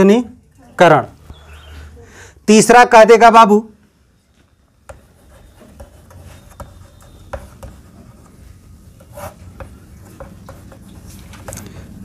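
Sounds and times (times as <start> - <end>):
chalk tapping on board: 4.8 - 8.4, 9.0 - 11.6
chalk scratching on blackboard: 4.8 - 11.2.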